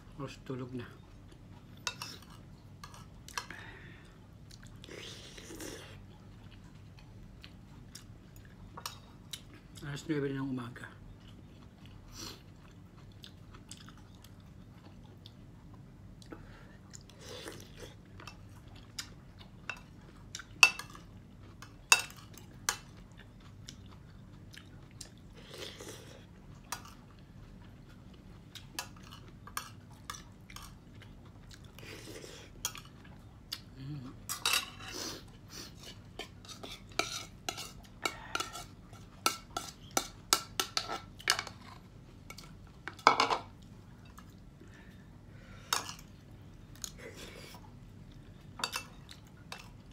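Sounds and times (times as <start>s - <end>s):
chewing: 11.1s - 42.9s
cutlery clinking on a plate: 42.9s - 43.5s.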